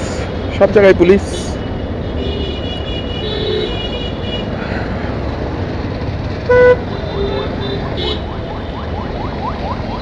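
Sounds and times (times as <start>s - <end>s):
motorcycle engine and road rumble: 0.0s - 10.0s
vehicle horn toot: 6.5s - 8.2s.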